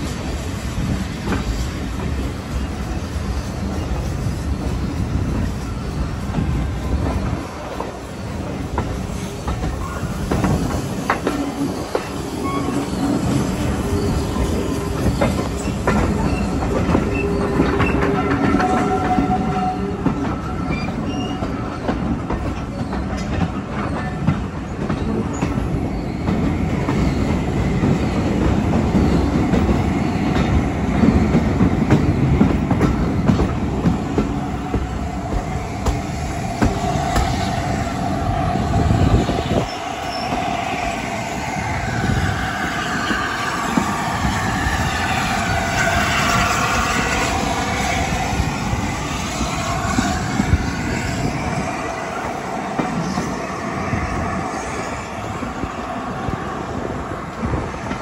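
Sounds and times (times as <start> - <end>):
train coach rumble: 0.0 - 58.0
wheels squealing: 9.2 - 22.0.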